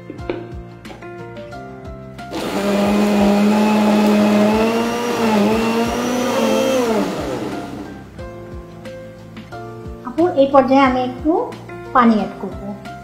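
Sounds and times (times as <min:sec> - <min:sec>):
blender motor running: 0:02.3 - 0:08.1.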